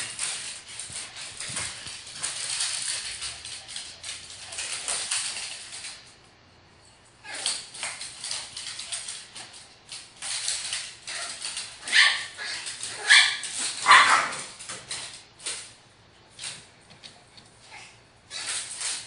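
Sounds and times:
small dogs barking: 11.8s - 14.5s.

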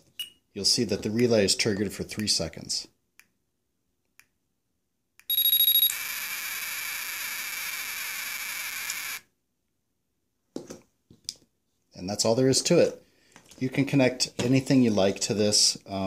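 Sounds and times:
high electronic beep: 5.3s - 6.0s
harsh buzzing alarm tone: 5.3s - 9.3s.

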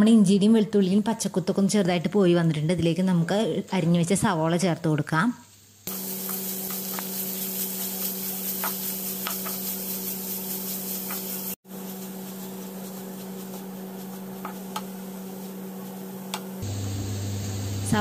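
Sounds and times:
onions sizzling in oil: 5.4s - 18.0s
wooden spatula tapping and scraping pan: 5.9s - 16.6s
steady low hum: 11.7s - 18.0s.

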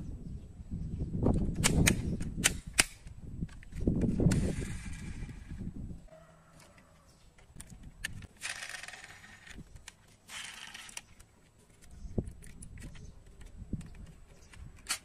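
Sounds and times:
metal model car clicks and clinks: 7.4s - 11.3s.

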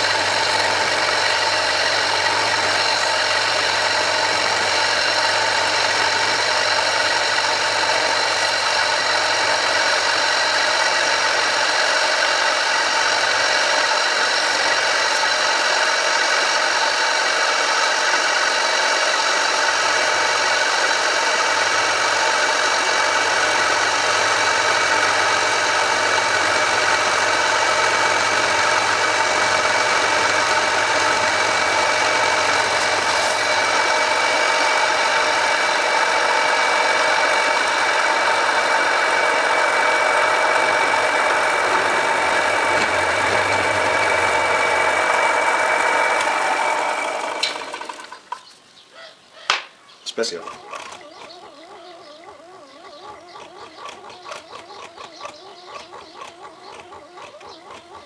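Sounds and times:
metal lathe whining: 0.0s - 48.3s.

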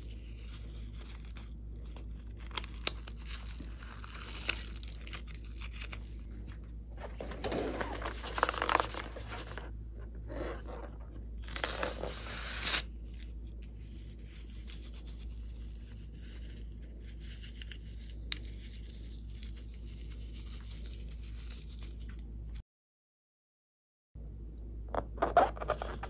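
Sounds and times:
balloon rubbing and crinkling: 0.0s - 22.0s
air hissing from balloon: 11.6s - 12.9s.

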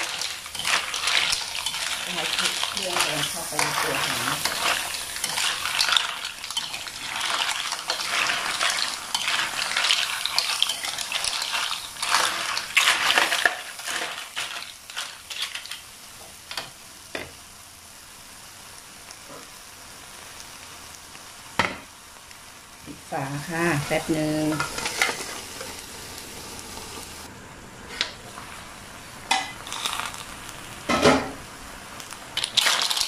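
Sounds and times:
metal spatula scraping wok: 0.0s - 15.8s, 23.4s - 25.8s
mussel shells rattling in wok: 0.0s - 15.9s, 29.3s - 30.3s, 32.3s - 33.0s
sizzling: 0.0s - 33.0s.

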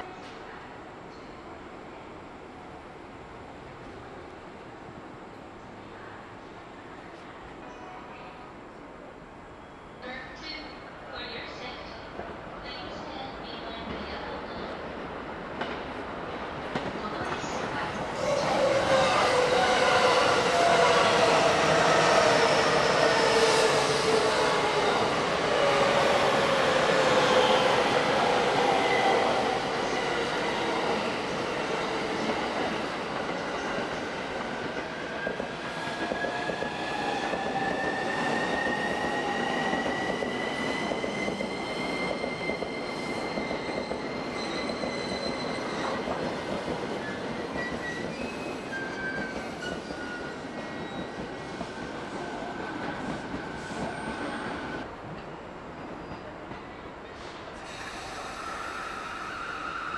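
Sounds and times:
high train whine: 0.0s - 59.9s
electric train passing: 15.0s - 56.0s, 57.1s - 59.9s.

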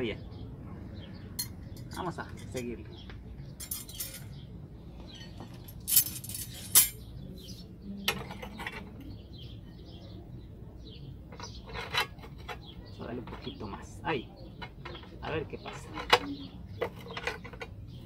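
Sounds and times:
faint birds chirping: 0.0s - 18.0s
steel rod clinking on metal: 3.6s - 4.3s, 5.8s - 7.0s.

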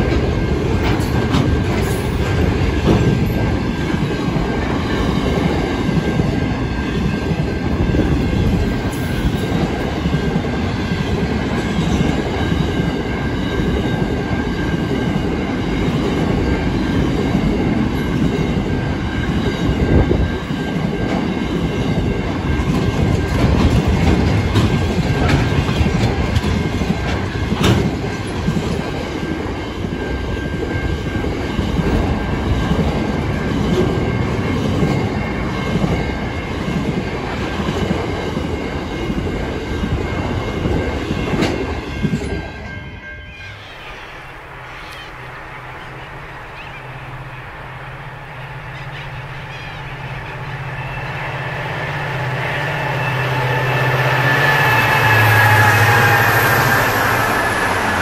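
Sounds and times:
train wheels rumbling on rails: 0.0s - 58.0s
high wheel squeal: 43.0s - 58.0s.

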